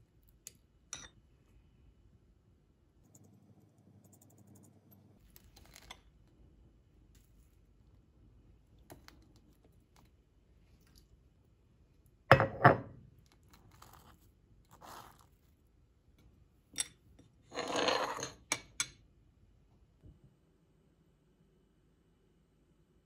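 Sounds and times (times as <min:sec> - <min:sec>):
knocks on stone countertop: 0:12.3 - 0:12.9
knife scraping toast: 0:14.7 - 0:15.3.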